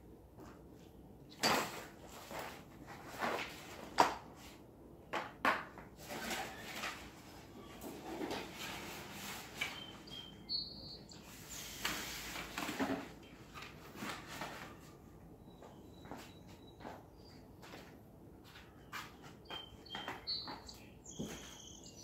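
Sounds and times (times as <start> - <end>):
objects knocking and clattering: 1.3 - 2.0.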